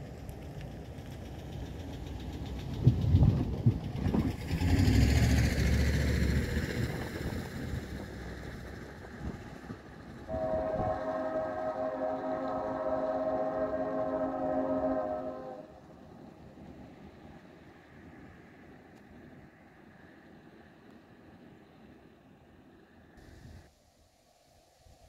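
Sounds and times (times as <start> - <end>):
low rumble with falling hiss: 0.0 - 25.0
distant locomotive air horn: 10.3 - 15.8.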